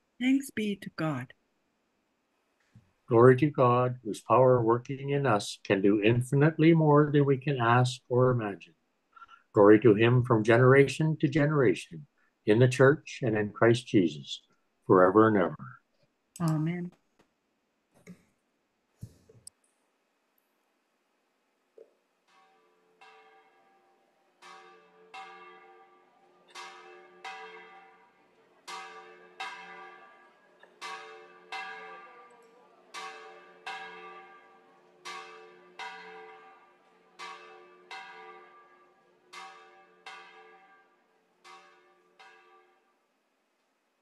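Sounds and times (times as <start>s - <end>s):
church bells ringing: 22.3s - 42.8s.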